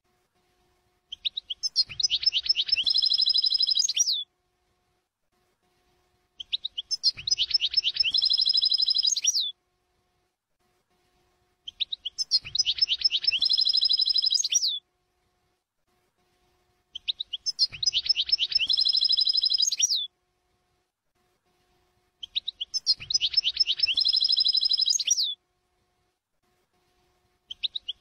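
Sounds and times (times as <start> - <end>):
goldfinch song: 1.1 - 4.2, 6.4 - 9.5, 11.7 - 14.8, 16.9 - 20.1, 22.2 - 25.4, 27.5 - 28.0.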